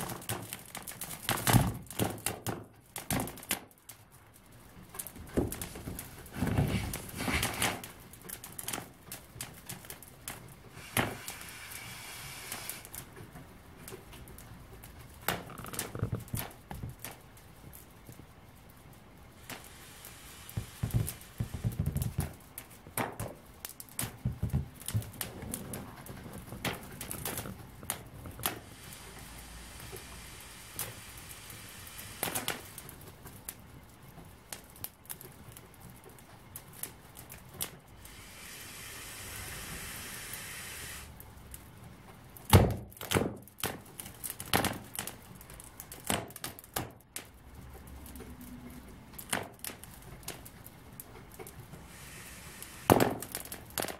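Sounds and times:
soft hiss of air: 4.2 - 42.5, 47.4 - 53.9
balloon crackling and creaking: 4.4 - 8.7, 10.5 - 33.7.

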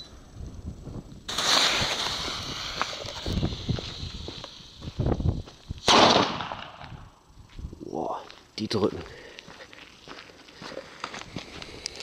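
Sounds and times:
fuse hissing: 1.2 - 5.8
firecracker bang: 1.3 - 3.0, 5.8 - 7.0.

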